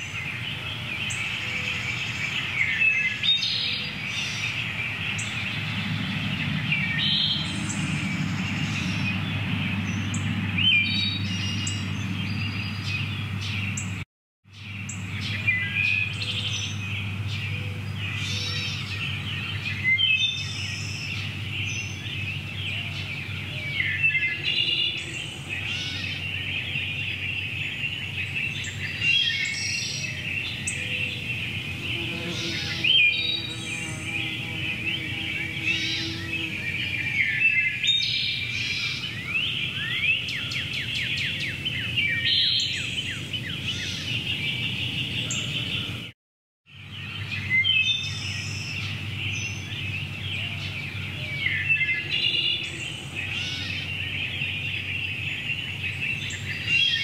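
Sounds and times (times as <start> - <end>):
songbirds chirping and singing: 0.0 - 57.0
steady low rumble: 4.8 - 14.0.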